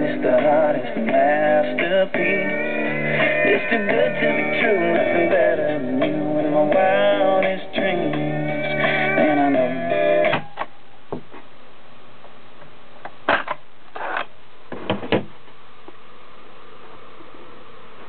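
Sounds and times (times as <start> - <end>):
song with guitar from speaker: 0.0 - 10.8.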